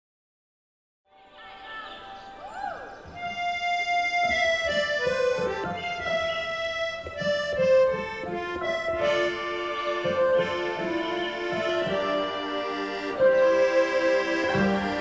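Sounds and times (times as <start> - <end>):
slow accordion melody: 3.1 - 15.0.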